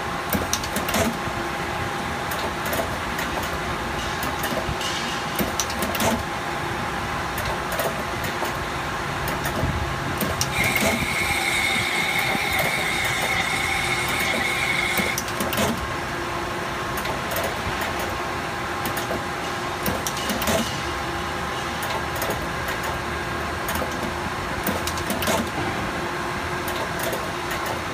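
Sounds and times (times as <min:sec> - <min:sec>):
rotary machine humming: 0:10.3 - 0:15.8
high steady whine: 0:10.5 - 0:15.4.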